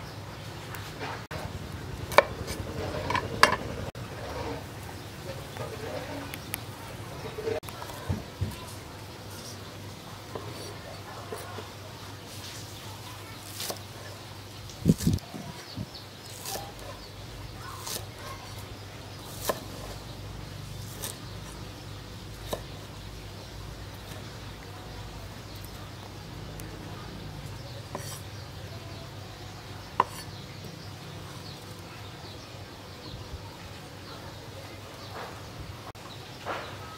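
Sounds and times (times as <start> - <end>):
steady low hum: 1.3 - 7.6.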